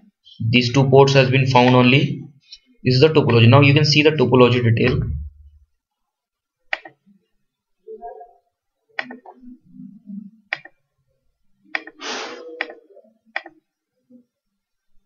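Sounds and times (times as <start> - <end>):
computer mouse clicking: 6.7 - 7.0, 9.0 - 9.3, 10.5 - 10.8, 11.7 - 12.0, 12.6 - 13.6
short hiss: 12.0 - 12.5.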